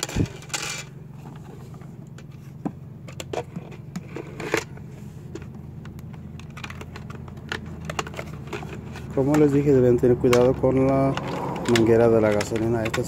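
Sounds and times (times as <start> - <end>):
steady low hum: 0.0 - 13.0
plastic parts clicking: 3.0 - 13.0.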